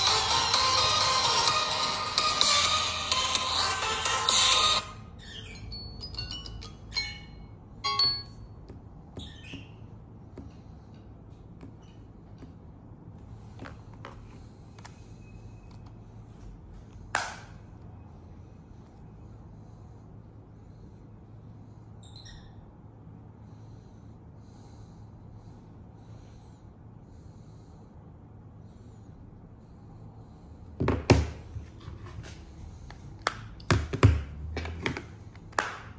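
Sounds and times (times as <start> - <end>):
low steady hum: 0.0 - 35.9
fingertip tapping touchscreen: 7.9 - 15.0.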